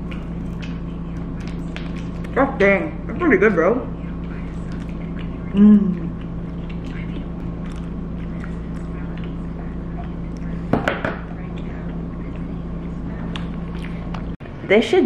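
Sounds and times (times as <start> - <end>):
person chewing: 0.0 - 2.4, 4.0 - 10.7, 11.3 - 14.4
low hum: 0.0 - 14.7
person humming: 5.3 - 6.2.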